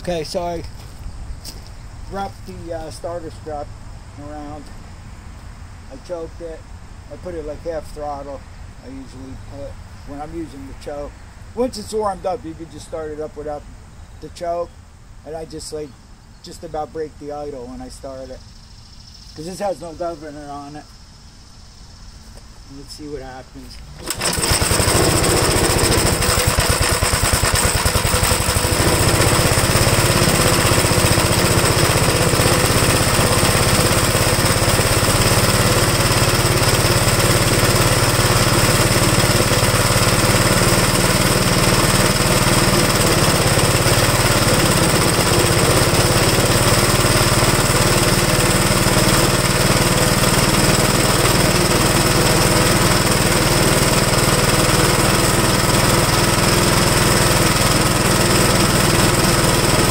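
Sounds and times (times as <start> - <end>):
single-cylinder engine running: 24.0 - 59.9.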